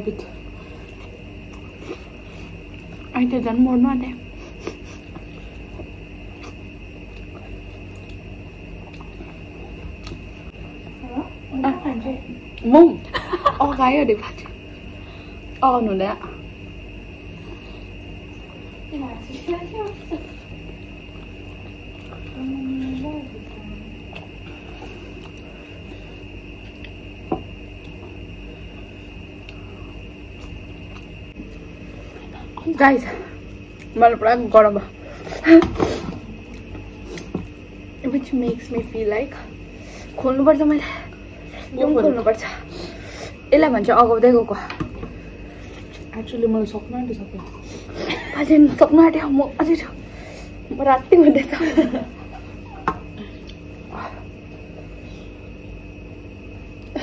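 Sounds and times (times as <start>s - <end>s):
background hum: 0.0s - 57.0s
people chewing: 0.4s - 3.1s, 4.3s - 11.1s, 19.9s - 34.0s, 34.9s - 38.0s, 52.3s - 55.0s.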